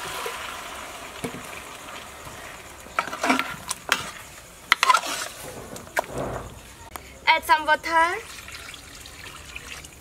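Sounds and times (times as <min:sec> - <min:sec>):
metal spoon scraping pot: 0:03.0 - 0:05.7.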